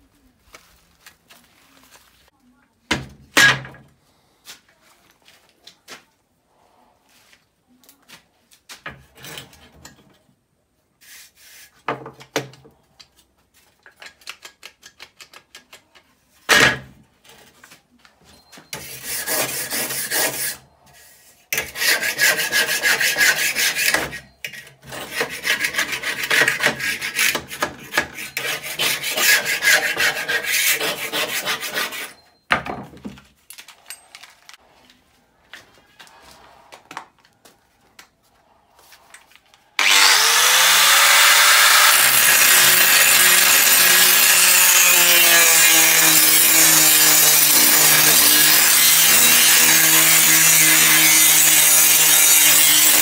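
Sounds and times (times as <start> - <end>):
wire brush scrubbing metal: 18.8 - 32.2.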